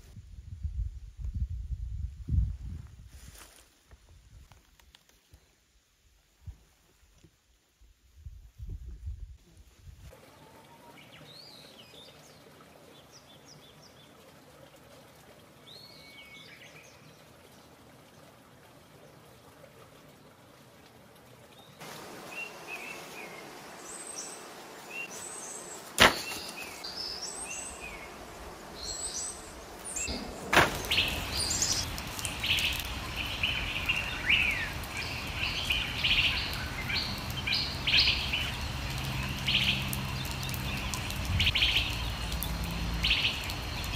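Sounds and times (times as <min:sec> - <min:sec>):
steady background hiss: 0:21.5 - 0:40.3
sharp knock: 0:26.0 - 0:26.5
birds chirping and calling: 0:28.8 - 0:42.2.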